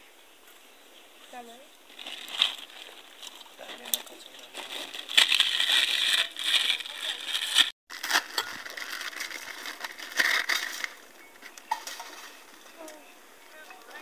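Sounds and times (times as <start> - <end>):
dry noodles crunching: 1.9 - 11.0
plastic packet crinkling: 1.9 - 11.0.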